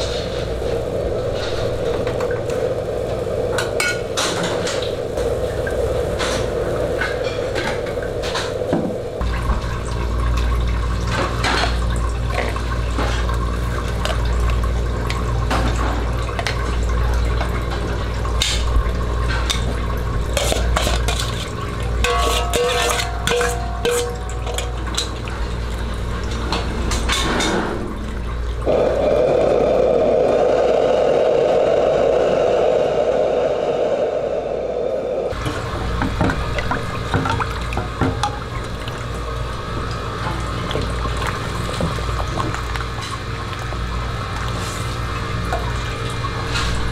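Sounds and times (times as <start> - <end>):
soup boiling: 11.9 - 26.3, 28.6 - 46.9
metal ladle scraping wok: 20.4 - 24.7
low rumble: 28.7 - 35.4.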